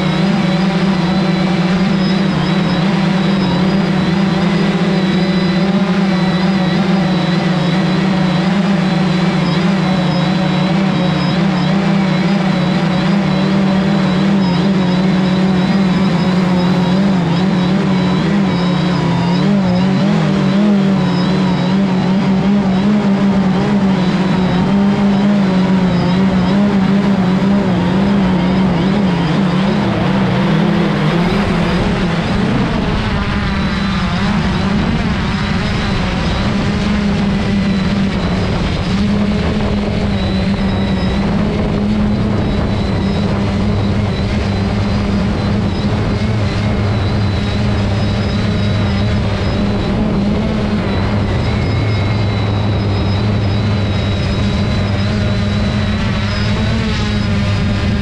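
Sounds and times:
drone propellers buzzing: 0.0s - 58.0s.

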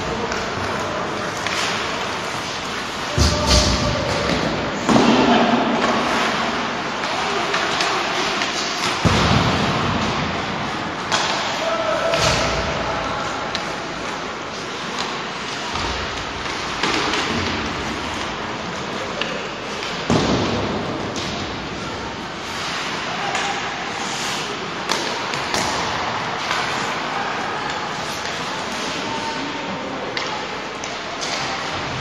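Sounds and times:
puck and sticks knocking on boards: 0.2s - 6.4s, 7.0s - 12.8s, 14.8s - 21.7s, 24.8s - 26.8s.

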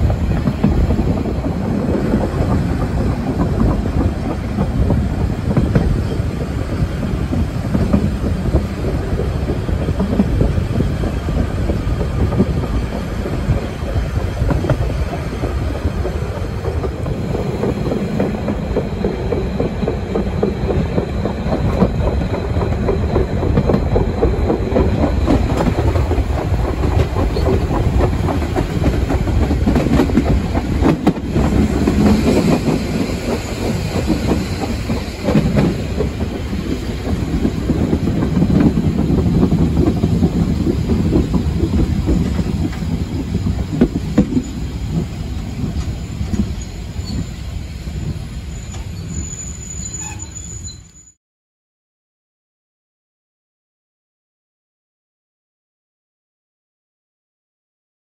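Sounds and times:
train wheels clattering on rails: 0.0s - 50.8s
high wheel squeal: 46.0s - 51.2s.

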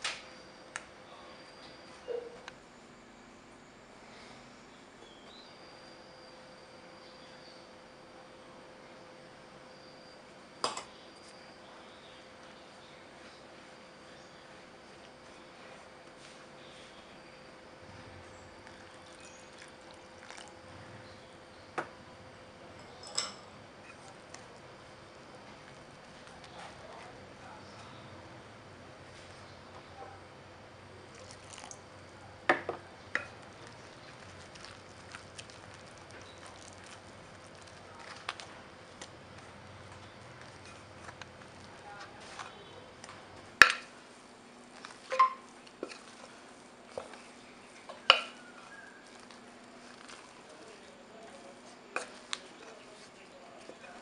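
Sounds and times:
faint steady hum: 0.0s - 54.0s
spatula mixing dough: 11.2s - 29.5s, 30.9s - 54.0s
wet squishing: 18.6s - 20.6s, 31.1s - 31.8s, 33.3s - 43.1s, 44.7s - 54.0s
water poured into flour: 18.8s - 20.6s, 31.0s - 31.8s.

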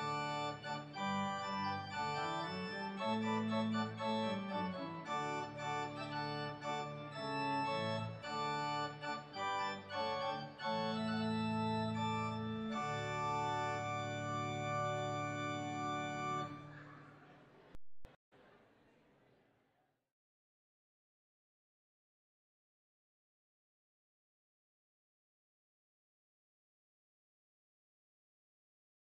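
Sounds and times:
organ playing chords: 0.0s - 17.0s.

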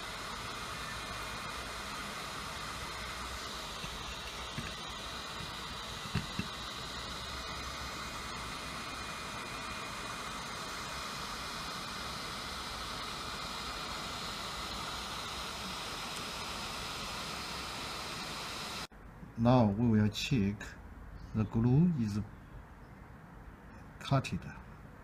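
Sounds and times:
hot air gun hissing: 0.0s - 18.9s.

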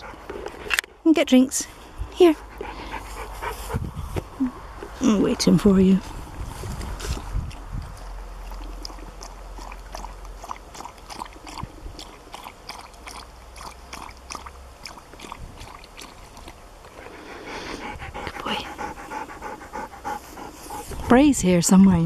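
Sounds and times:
dog lapping water: 7.1s - 21.1s.

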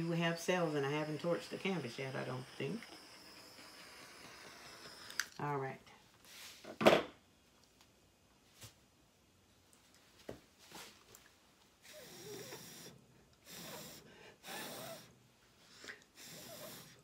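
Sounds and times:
person blowing puffs of air: 13.4s - 15.1s, 15.7s - 17.0s.

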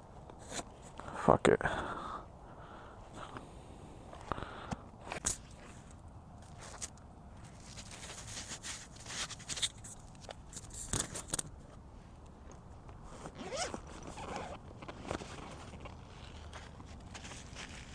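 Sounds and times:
clothing scraping and rustling: 5.0s - 11.2s, 13.0s - 17.9s
clothing sliding: 13.2s - 14.5s.

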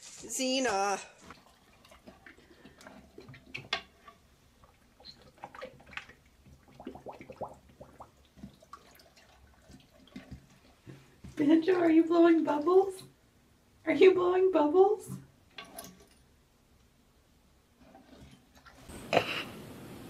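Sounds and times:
dog splashing water in toilet: 1.2s - 13.2s.

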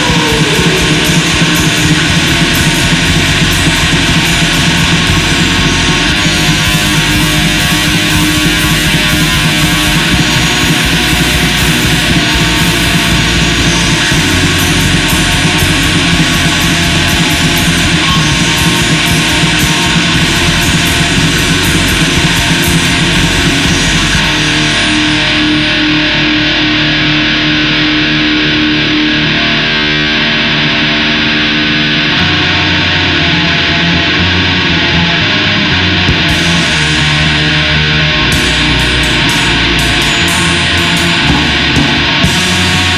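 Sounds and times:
black metal music: 0.0s - 42.9s
held guitar note ringing: 34.9s - 42.9s.

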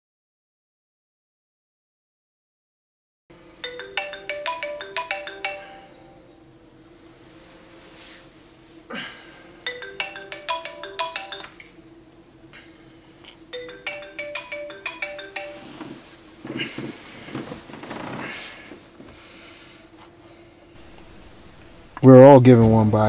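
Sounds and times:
steady low hum: 3.3s - 23.0s
bell-like ringtone tune: 3.6s - 6.3s, 9.6s - 11.8s, 13.5s - 16.2s.

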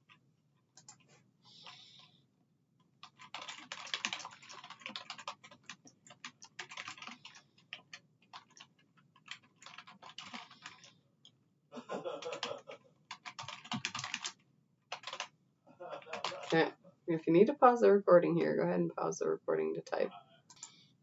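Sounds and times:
computer keyboard typing: 0.8s - 2.1s, 3.0s - 10.9s, 12.1s - 15.3s, 16.0s - 16.7s, 20.5s - 20.8s.

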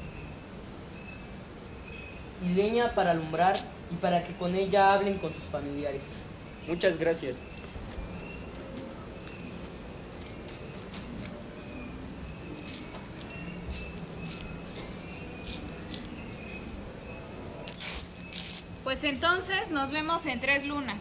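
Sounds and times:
crickets trilling: 0.0s - 21.0s.

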